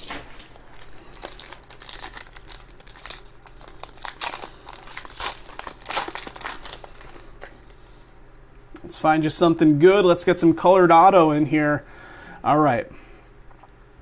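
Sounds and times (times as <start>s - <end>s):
foil wrapper crinkling: 0.0s - 7.8s.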